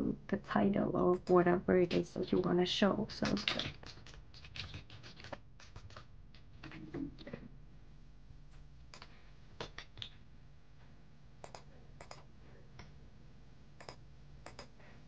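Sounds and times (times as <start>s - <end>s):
mouse and keyboard clicks: 11.4s - 12.2s, 13.8s - 14.7s.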